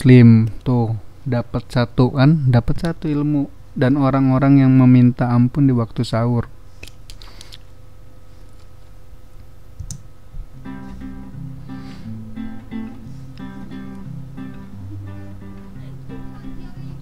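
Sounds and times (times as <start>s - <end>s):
plucked acoustic guitar music: 10.6s - 17.0s.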